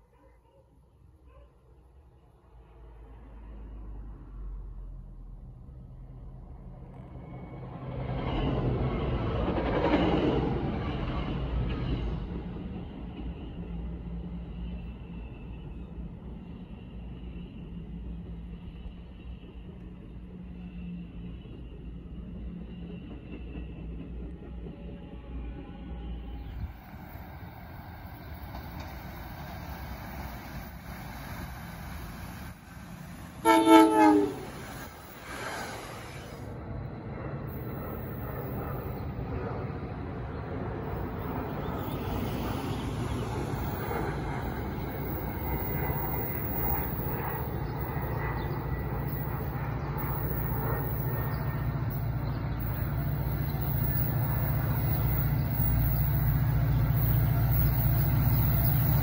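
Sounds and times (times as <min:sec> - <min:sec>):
train wheels rumbling on rails: 0:06.7 - 0:59.0
train horn blast: 0:33.4 - 0:34.8.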